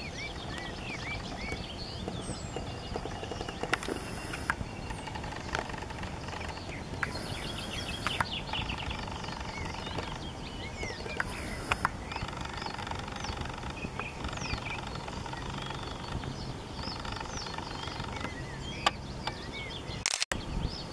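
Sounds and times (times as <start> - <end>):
small birds chirping: 0.0 - 20.9
steady low rumble: 0.0 - 20.9
sharp clicks: 2.6 - 8.7, 11.1 - 16.2, 20.0 - 20.4.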